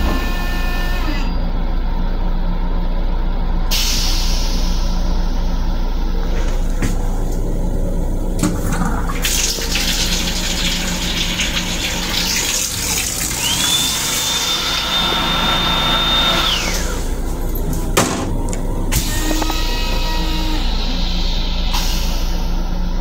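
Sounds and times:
faucet water running: 8.8s - 17.6s
high whine: 12.8s - 23.0s.

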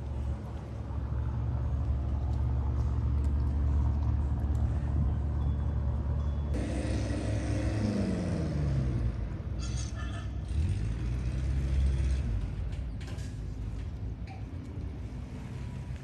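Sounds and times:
boat engine rumble: 0.0s - 7.5s.

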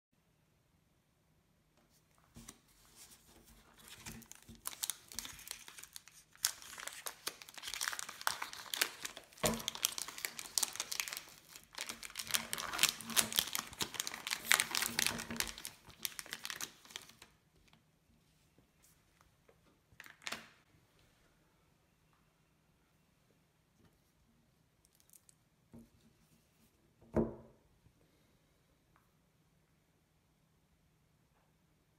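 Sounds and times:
wrapper crinkling: 3.6s - 17.4s.

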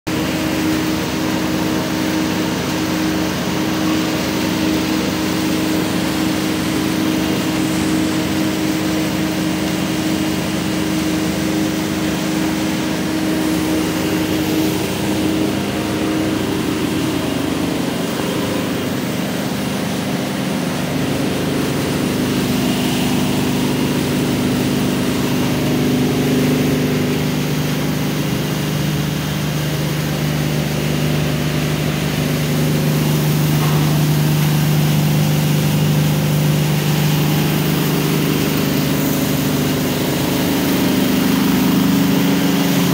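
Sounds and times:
dense machine noise: 0.1s - 42.9s
machinery motor hum: 0.1s - 42.9s.

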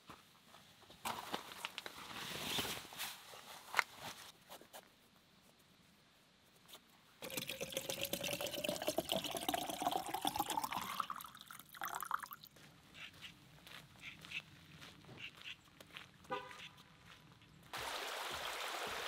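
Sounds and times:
water pouring into plastic bottle: 7.2s - 12.4s.

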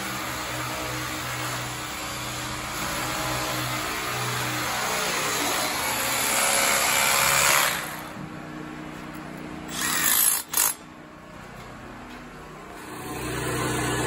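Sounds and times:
cordless drill driving screws: 9.7s - 10.8s.

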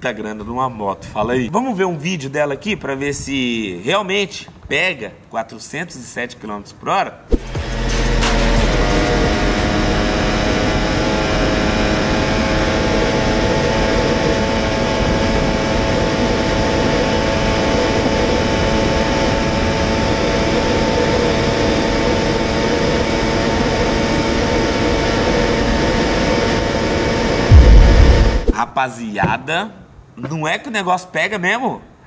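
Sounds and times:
motorcycle engine whine at high revs: 9.0s - 27.5s
heavy wind rush: 27.5s - 28.6s.

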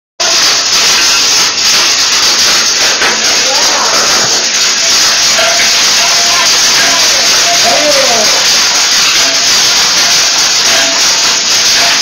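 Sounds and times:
hail pounding on a shelter: 0.2s - 12.0s.

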